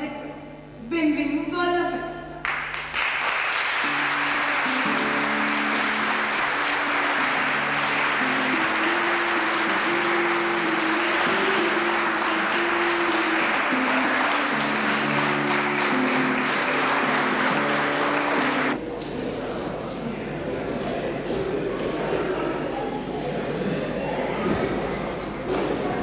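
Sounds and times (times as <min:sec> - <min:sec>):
audience applauding: 0:02.4 - 0:18.8.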